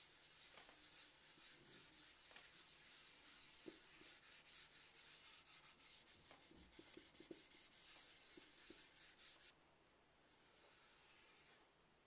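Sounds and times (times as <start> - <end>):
rag rubbing wood: 0.0 - 9.5.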